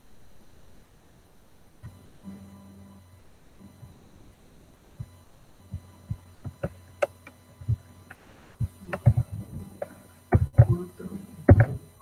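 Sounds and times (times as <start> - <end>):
faint low hum: 0.0 - 12.0
keyboard and mouse clicks: 8.9 - 9.2.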